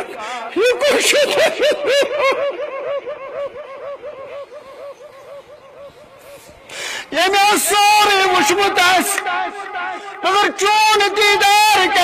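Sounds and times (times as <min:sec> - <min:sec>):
person laughing or sobbing: 0:00.0 - 0:07.2.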